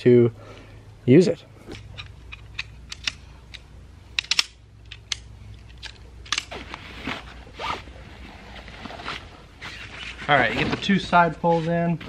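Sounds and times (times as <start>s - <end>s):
metal poles clicking: 1.7s - 6.6s
nylon fabric rustling: 6.5s - 12.0s.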